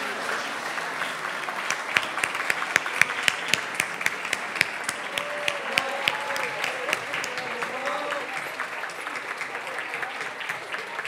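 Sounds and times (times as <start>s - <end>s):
audience applauding: 0.0s - 11.0s
single loud claps: 1.5s - 7.4s.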